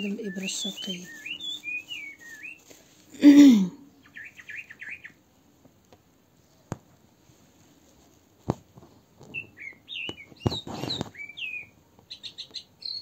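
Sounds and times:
small bird chirping and warbling: 0.0 - 2.8, 3.8 - 5.2, 9.3 - 13.0.

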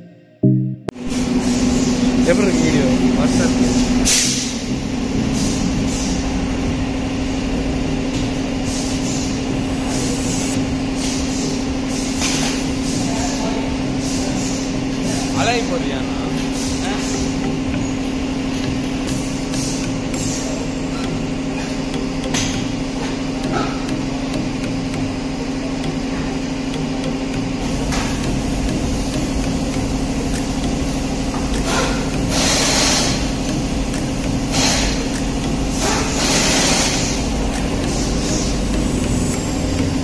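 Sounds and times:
steady mechanical hum: 0.9 - 40.0
short hissing bursts: 31.6 - 33.5, 34.4 - 37.3.

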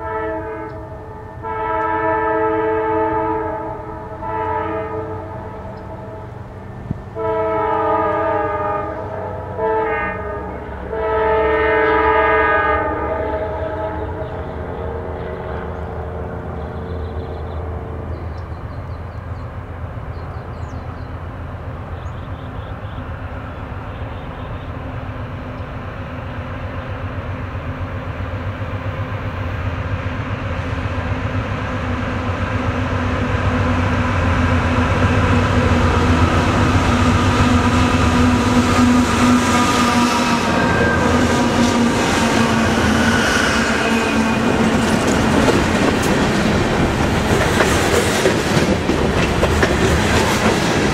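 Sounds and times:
diesel locomotive engines droning: 0.0 - 50.9
train wheels clattering on rail: 34.5 - 50.9.

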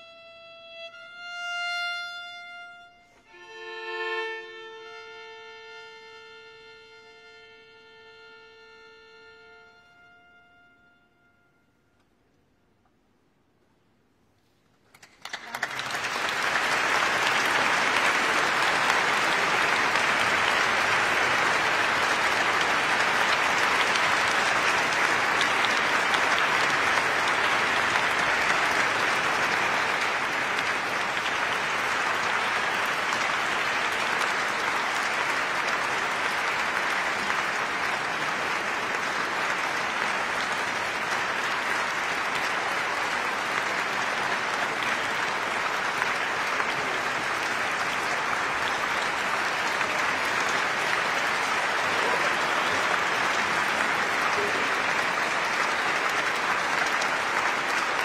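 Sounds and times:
audience applauding: 14.9 - 58.0.

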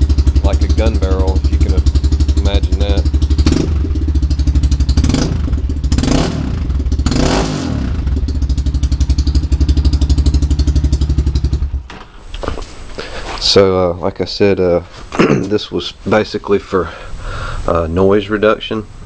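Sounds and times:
engine idling: 0.0 - 11.9.

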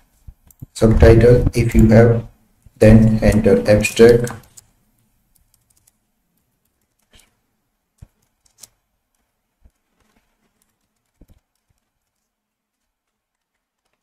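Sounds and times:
keyboard keystrokes: 2.9 - 4.7, 5.3 - 6.0.

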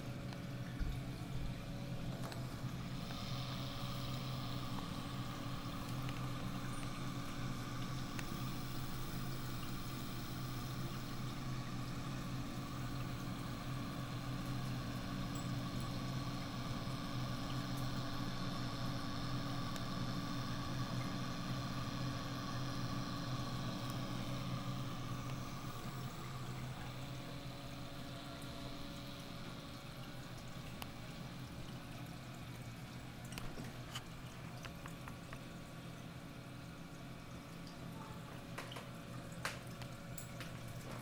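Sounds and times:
aquarium pump hum: 0.0 - 41.0
water circulating: 0.0 - 41.0.

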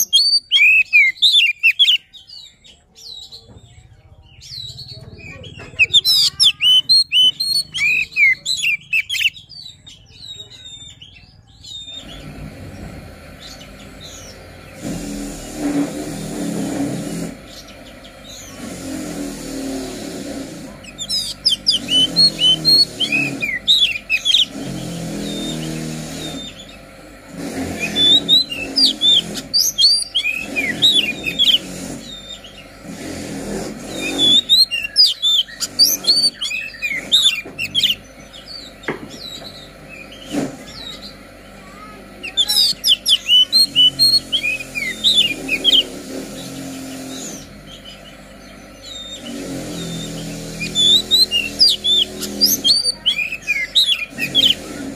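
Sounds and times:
bird chirps and whistles: 0.0 - 3.2, 5.8 - 12.3, 20.9 - 26.7, 27.6 - 32.6, 33.9 - 41.1, 42.2 - 45.9, 48.8 - 54.8
low uneven rumble: 8.8 - 54.9.

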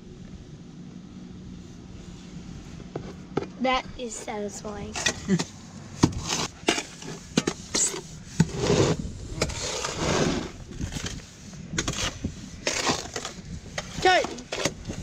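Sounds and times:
metal shovel scraping plastic tub: 4.0 - 15.0.

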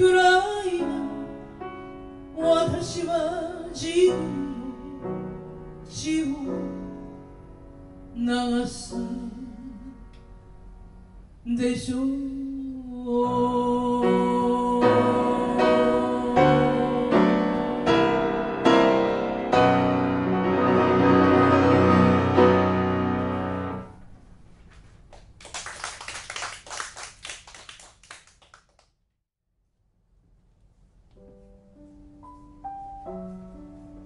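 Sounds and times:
grand piano chords: 0.0 - 11.4, 13.2 - 24.6, 31.1 - 34.0
audience applause: 25.4 - 28.8.

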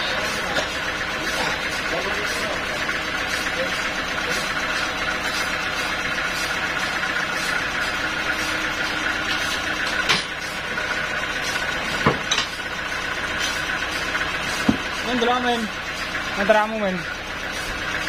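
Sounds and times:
sharp metal clanks: 0.0 - 2.5, 9.3 - 10.6, 11.9 - 12.7
sawmill machinery humming: 0.0 - 18.0.

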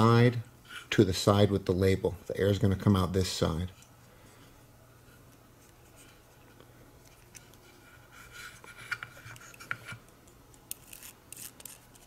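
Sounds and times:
faint rubbing of plastic parts: 3.4 - 10.1.

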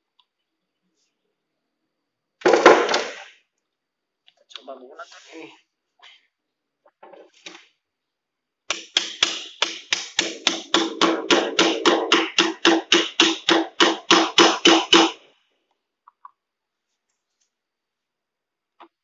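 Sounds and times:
hammer tapping nail: 8.7 - 15.2.

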